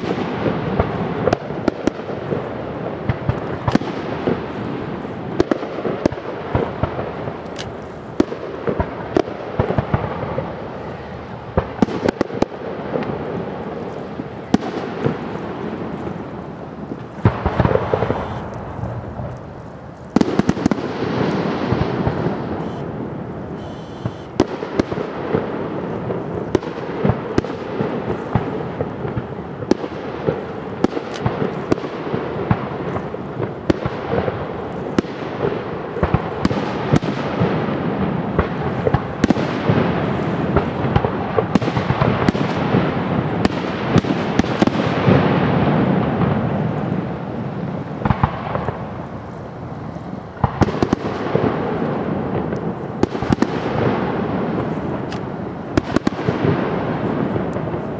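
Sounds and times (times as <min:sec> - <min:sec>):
fireworks bursting: 0:00.0 - 0:57.9.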